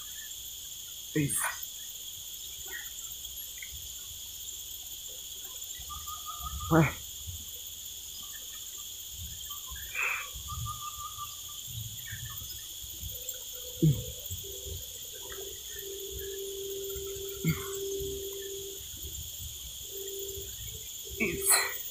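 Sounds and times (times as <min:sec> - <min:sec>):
insects droning: 0:00.0 - 0:21.9
steady low tone: 0:09.8 - 0:21.9.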